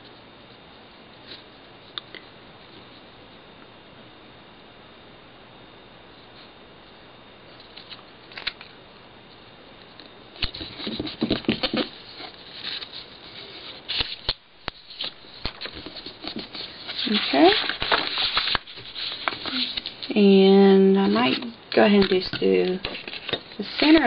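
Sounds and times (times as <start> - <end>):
paper rustling and sliding: 10.5 - 20.1, 21.0 - 24.0.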